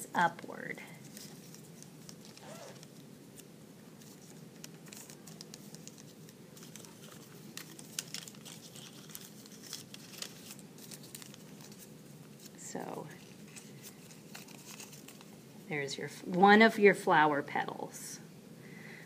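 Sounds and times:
low room hum: 0:00.0 - 0:19.0
paper crackles: 0:00.8 - 0:15.4
paper rustling and crinkling: 0:00.8 - 0:15.4.

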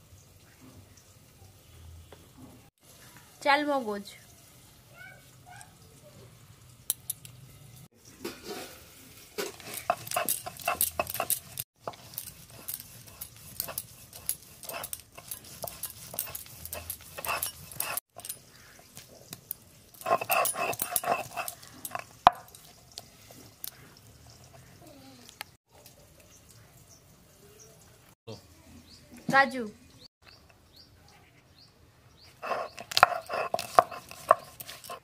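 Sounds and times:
stone scraping and crunching on stone: 0:09.1 - 0:23.8, 0:32.4 - 0:35.0.

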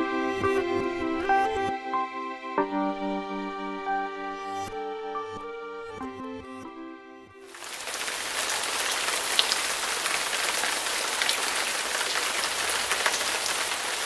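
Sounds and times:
background music: 0:00.0 - 0:07.6
rain drops ticking: 0:07.5 - 0:14.0
rain falling on water: 0:07.5 - 0:14.0.

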